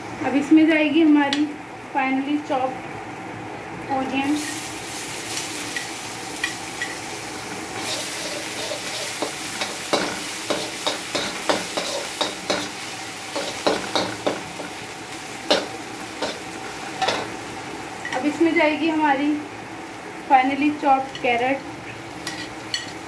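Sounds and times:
onion sizzling in hot oil: 0.0 - 23.0
metal spatula scraping pan: 7.8 - 12.7.

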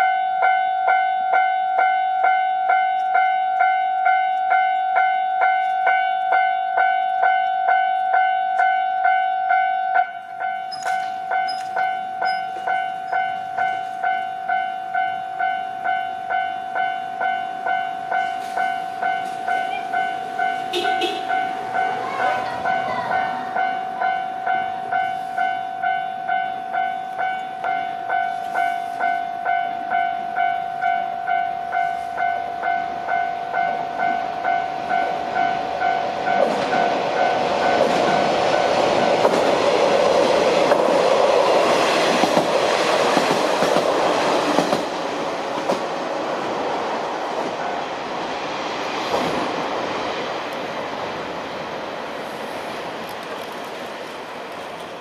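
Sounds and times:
level crossing warning bell: 0.0 - 39.8
diesel railcar passing: 0.0 - 55.0.

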